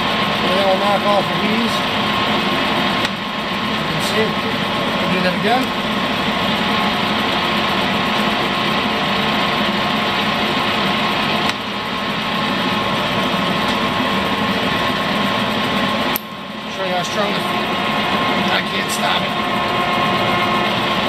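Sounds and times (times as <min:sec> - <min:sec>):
lathe hum and gear whine: 0:00.0 - 0:21.0
sharp click: 0:11.4 - 0:11.6, 0:16.1 - 0:16.3.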